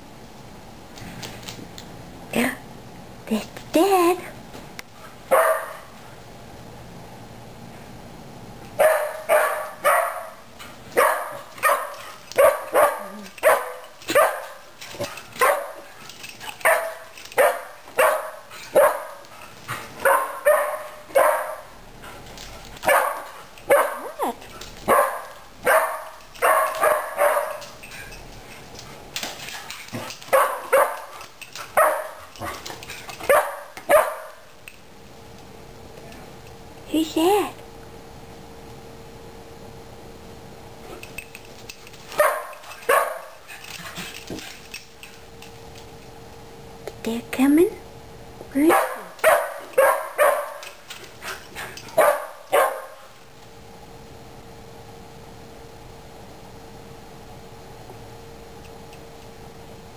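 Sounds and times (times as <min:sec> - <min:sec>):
dog barking excitedly: 0:05.2 - 0:05.9, 0:08.8 - 0:21.8, 0:22.8 - 0:27.8, 0:29.6 - 0:34.5, 0:42.1 - 0:44.2, 0:48.6 - 0:53.1.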